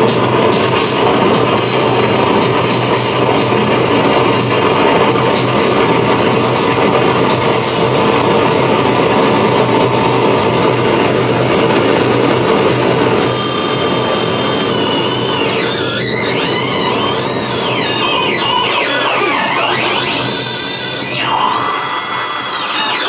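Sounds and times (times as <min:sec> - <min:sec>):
loud distorted noise music: 0:00.0 - 0:23.0
high sweeping tones: 0:13.1 - 0:23.0.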